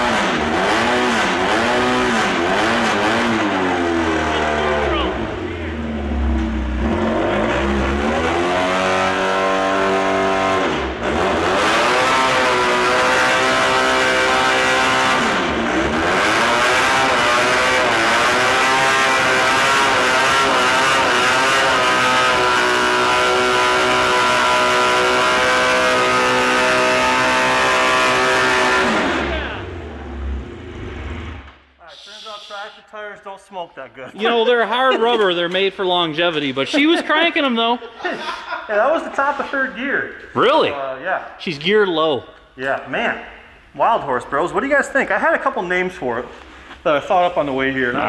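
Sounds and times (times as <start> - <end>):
tractor engine revving: 0.0 - 32.5
tires spinning on rubber mat: 6.0 - 31.6.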